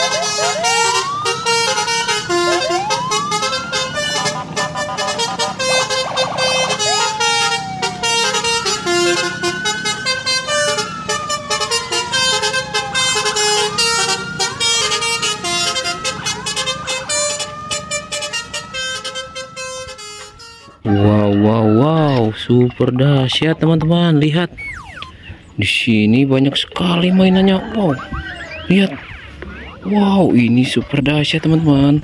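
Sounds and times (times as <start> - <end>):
horn-like honks: 0.0 - 21.0
sliding siren-like tones: 0.0 - 31.9.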